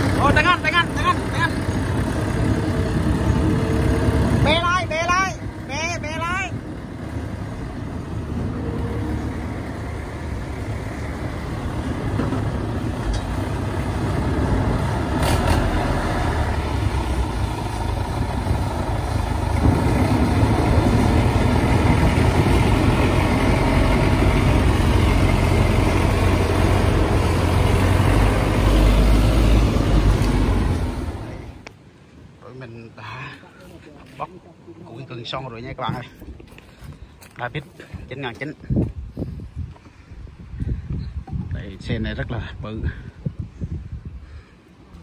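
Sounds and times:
tractor diesel engine running: 0.0s - 31.7s.

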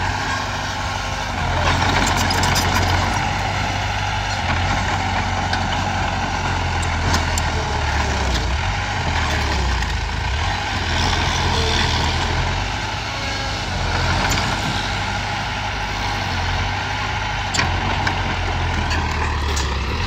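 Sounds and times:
bulldozer diesel engine running: 0.0s - 20.0s.

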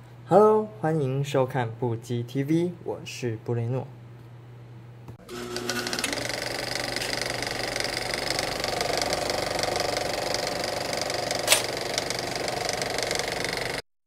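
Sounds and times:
small motor rattling: 5.3s - 13.8s
sharp click: 11.4s - 12.0s.

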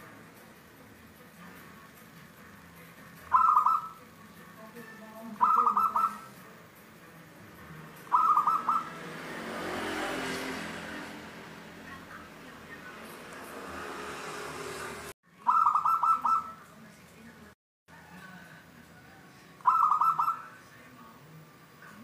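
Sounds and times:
dove cooing: 3.3s - 4.0s, 5.3s - 6.4s, 8.0s - 9.0s, 15.5s - 16.6s, 19.6s - 20.5s
passing vehicle: 5.4s - 17.3s.

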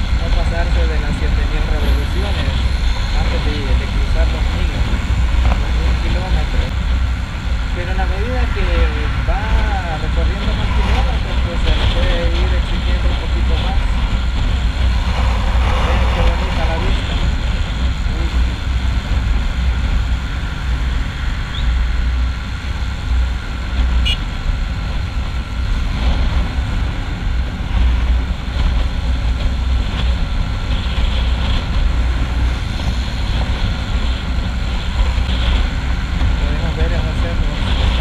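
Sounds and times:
wind buffeting microphone: 0.0s - 38.0s.

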